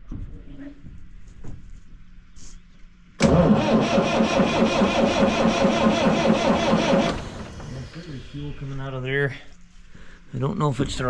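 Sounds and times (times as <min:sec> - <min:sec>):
diesel engine cranking on starter: 0:03.2 - 0:08.6.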